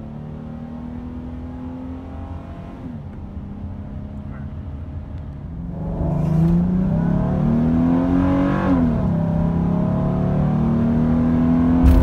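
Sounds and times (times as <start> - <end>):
car engine accelerating: 5.7 - 12.0.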